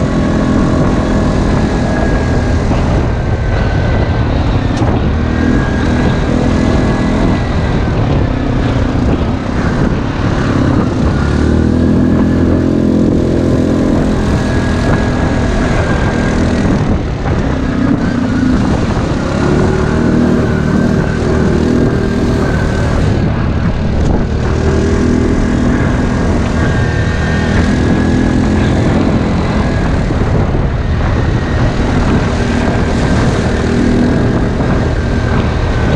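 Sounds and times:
atv engines revving: 0.0 - 35.9.

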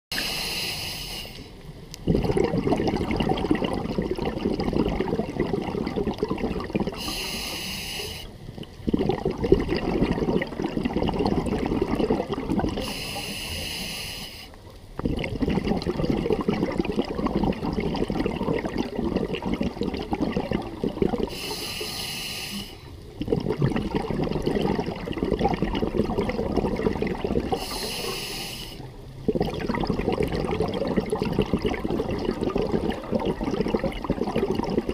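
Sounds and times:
regulator hissing inhales: 0.2 - 1.6, 7.0 - 8.4, 12.8 - 14.6, 21.3 - 23.0, 27.6 - 28.9
bubbling exhaust: 2.0 - 7.6, 8.8 - 14.0, 15.0 - 34.9.

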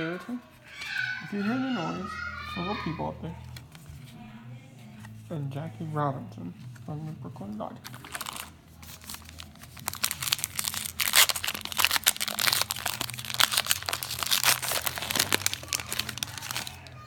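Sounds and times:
foil wrapper tearing and crinkling: 7.8 - 17.0.

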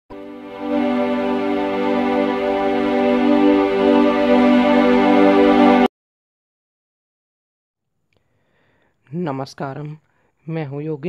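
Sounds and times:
held chord of steady tones: 0.1 - 5.9.

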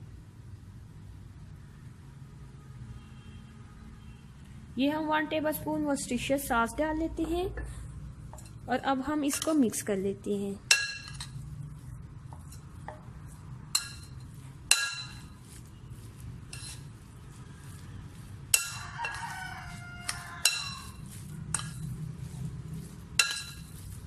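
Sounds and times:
metal spoon clinking glass bowl: 10.7 - 11.5, 13.7 - 15.6, 16.5 - 16.9, 18.5 - 22.0, 22.9 - 24.0.

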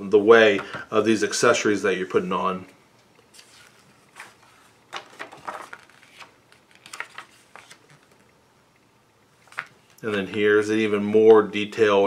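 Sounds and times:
paper pages rustling: 3.3 - 8.3, 9.4 - 10.5.

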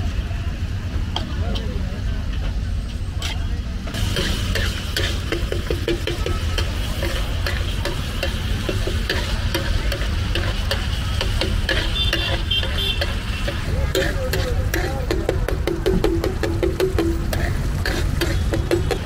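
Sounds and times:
liver sizzling in oil: 4.0 - 14.4
metal spatula scraping a griddle: 4.0 - 15.1, 17.3 - 19.0.

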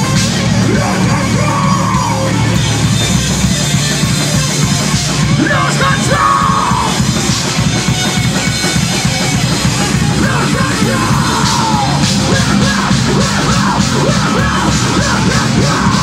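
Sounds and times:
harsh yelled vocals: 0.0 - 2.9, 5.2 - 7.3, 9.1 - 16.0
metal band playing live: 0.0 - 16.0.

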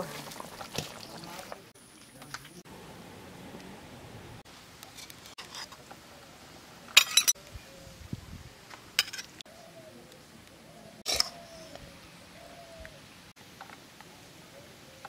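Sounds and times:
ladle scraping metal wok: 4.9 - 5.9.

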